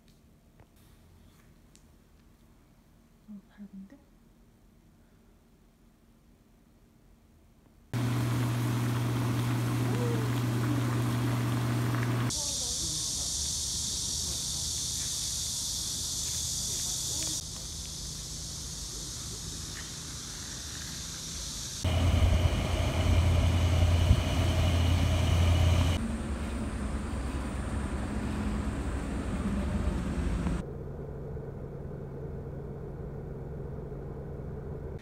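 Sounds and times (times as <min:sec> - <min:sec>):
car low rumble: 0:21.8 - 0:35.0.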